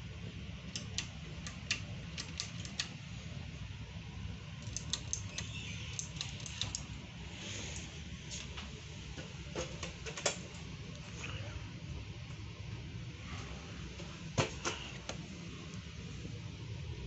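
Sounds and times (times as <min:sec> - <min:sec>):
ceiling fan humming: 0:00.0 - 0:17.0
light irregular clicks: 0:04.6 - 0:06.8.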